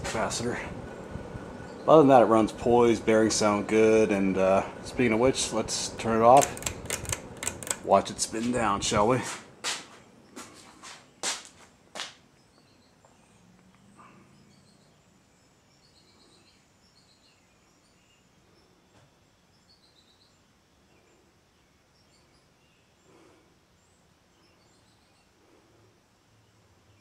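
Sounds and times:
sharp clicks: 0:06.2 - 0:08.6.

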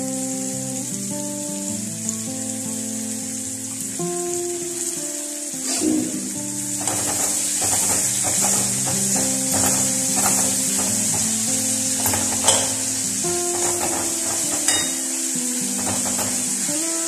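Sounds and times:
food sizzling in a pan: 0:00.0 - 0:17.0
spatula tapping pan: 0:06.6 - 0:16.9
wooden spatula stirring and scraping: 0:06.8 - 0:15.1, 0:15.7 - 0:16.7.

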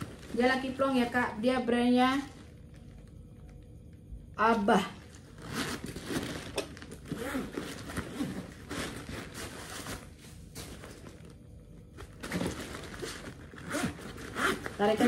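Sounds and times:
backpack rustling and crinkling: 0:00.0 - 0:01.2, 0:05.1 - 0:15.0.

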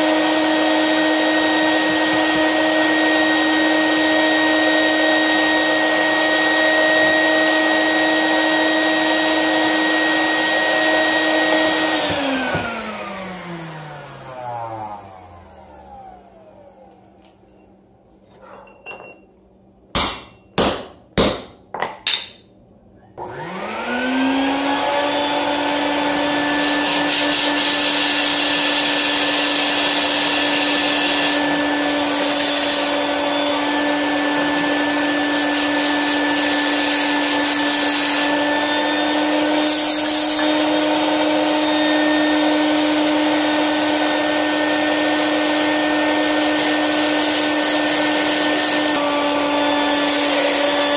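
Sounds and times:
shop vacuum running: 0:00.0 - 0:19.2, 0:23.1 - 0:50.9
compressed air blow gun hissing: 0:45.2 - 0:45.7, 0:46.3 - 0:49.0.

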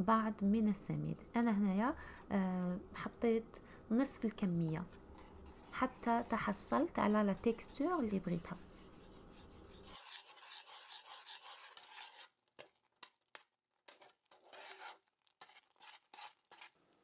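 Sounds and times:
metal spoon scraping a pot: 0:04.9 - 0:06.6, 0:07.4 - 0:16.8.

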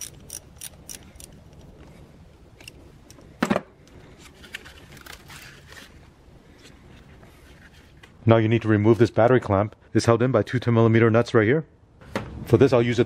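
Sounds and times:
wrench clicking: 0:00.0 - 0:01.7.

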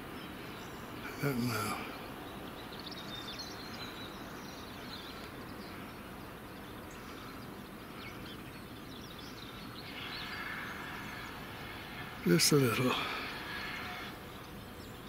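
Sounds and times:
faint outdoor background noise: 0:00.0 - 0:15.0
small birds chirping: 0:00.0 - 0:15.0.

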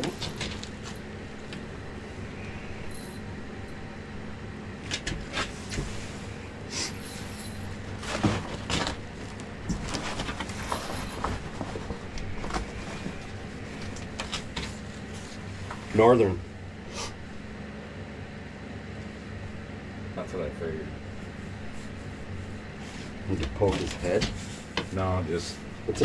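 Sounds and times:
steady low hum: 0:00.0 - 0:26.0
clothing rustling: 0:05.2 - 0:15.9.

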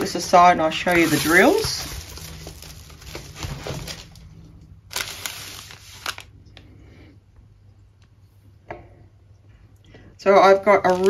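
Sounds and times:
plastic packaging crinkling: 0:00.0 - 0:06.6, 0:10.6 - 0:11.0
plastic rustling: 0:00.0 - 0:06.6, 0:10.6 - 0:11.0.

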